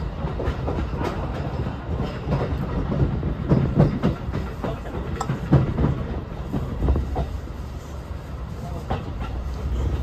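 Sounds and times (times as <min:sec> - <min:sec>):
train wheels knocking over rail joints: 0:00.0 - 0:07.4
low train rumble: 0:00.0 - 0:10.0.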